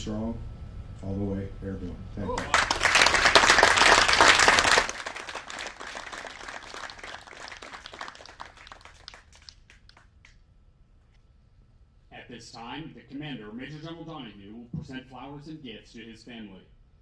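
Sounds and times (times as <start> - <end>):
audience applause: 2.3 - 10.1.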